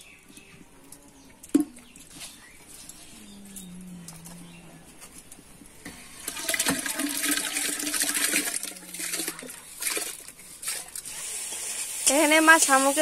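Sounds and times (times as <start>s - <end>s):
wet rice pouring into water: 6.2s - 12.2s.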